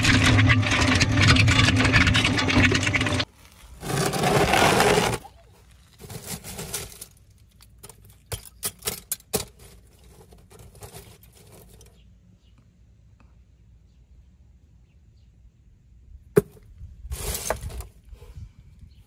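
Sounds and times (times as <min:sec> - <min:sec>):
plastic and cardboard pieces clattering: 0:00.0 - 0:11.9.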